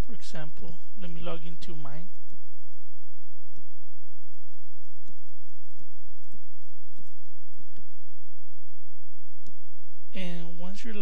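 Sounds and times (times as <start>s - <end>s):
low hum and hiss: 0.0s - 11.0s.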